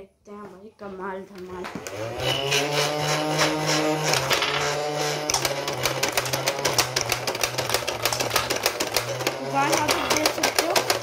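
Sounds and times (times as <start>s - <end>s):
toy gun motor whirring: 1.9s - 11.0s
rapid mechanical clicking: 5.2s - 11.0s.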